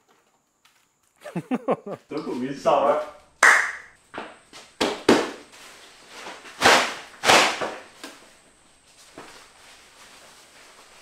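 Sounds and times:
cape flapping and rustling: 0:04.8 - 0:11.0
fabric snaps: 0:06.6 - 0:08.2.

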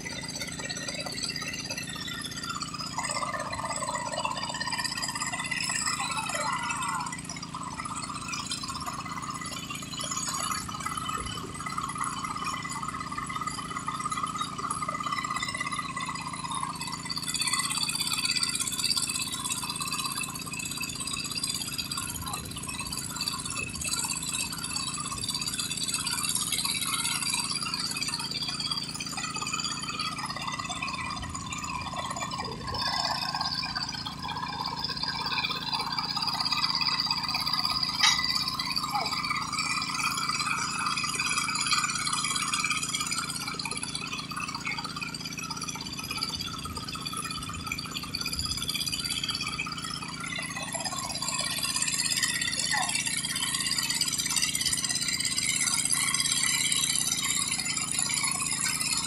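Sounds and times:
drilling rig engine running: 0:00.0 - 0:59.0
chains rattling: 0:31.2 - 0:43.3.

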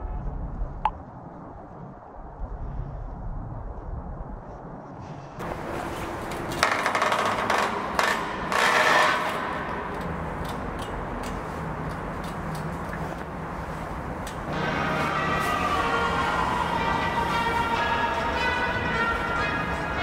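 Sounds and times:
scraping on stone floor: 0:05.4 - 0:14.5.

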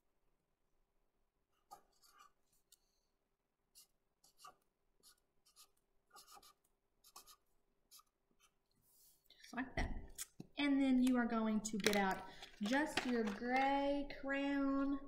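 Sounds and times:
marker writing on paper: 0:01.6 - 0:02.5, 0:03.7 - 0:08.6.

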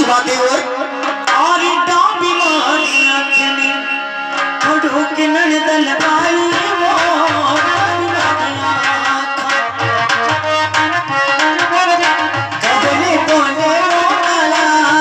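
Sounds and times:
barrel drum rhythm: 0:05.9 - 0:15.0.

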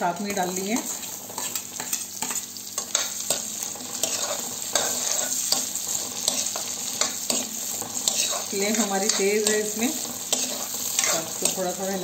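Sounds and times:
onions sizzling in oil: 0:00.0 - 0:12.0
steel ladle scraping a pan: 0:00.8 - 0:11.6.

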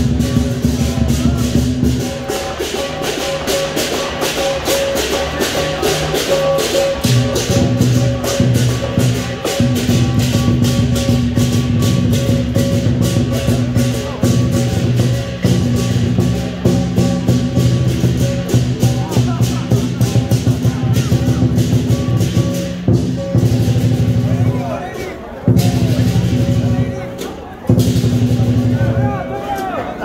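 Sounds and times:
drum cymbals and gong: 0:00.0 - 0:29.4.

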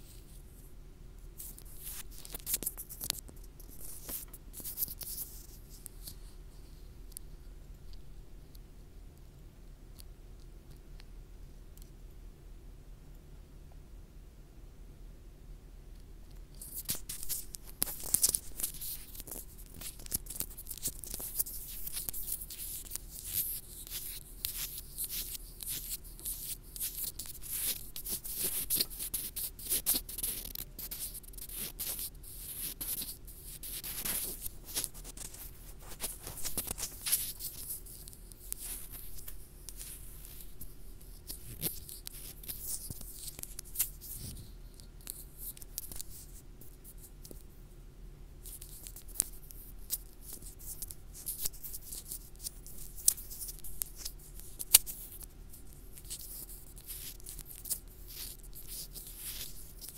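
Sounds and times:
fingertips scratching a microphone: 0:16.6 - 0:46.3.

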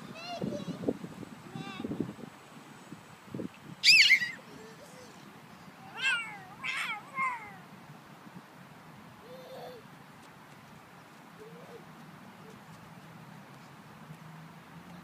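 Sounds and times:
child squealing: 0:03.8 - 0:05.2, 0:05.9 - 0:07.6, 0:09.2 - 0:09.8.

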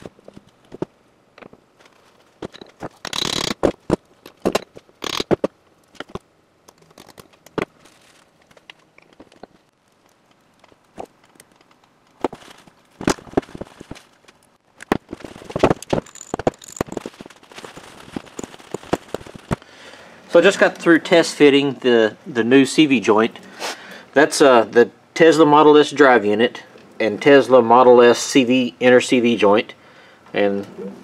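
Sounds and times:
tools clicking and scraping on workbench: 0:02.4 - 0:03.6.

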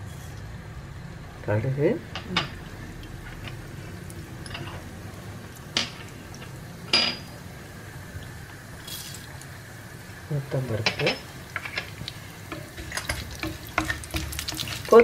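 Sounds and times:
low steady hum: 0:00.0 - 0:15.0
lentils pattering into oil: 0:02.2 - 0:15.0
glass bowl clinking on frying pan: 0:06.9 - 0:07.3.

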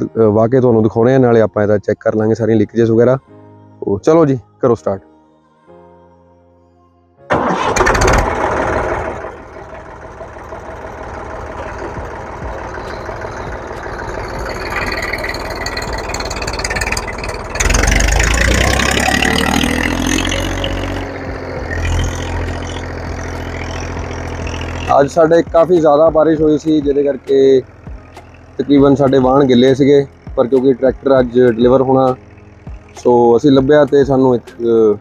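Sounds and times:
tractor diesel engine running: 0:07.3 - 0:35.0.

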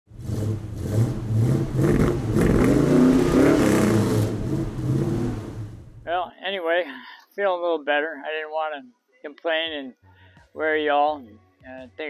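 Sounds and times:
race car engines revving: 0:00.1 - 0:06.1.

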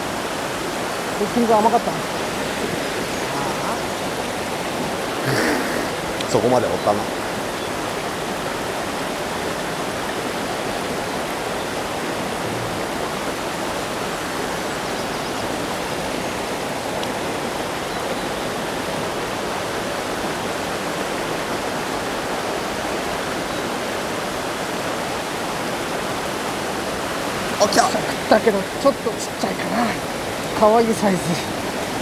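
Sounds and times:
stream rushing over boulders: 0:00.0 - 0:32.0.

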